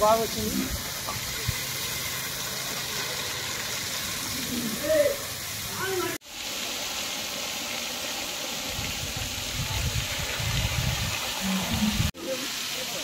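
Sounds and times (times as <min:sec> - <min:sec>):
shower water spraying and splashing: 0:00.0 - 0:13.0.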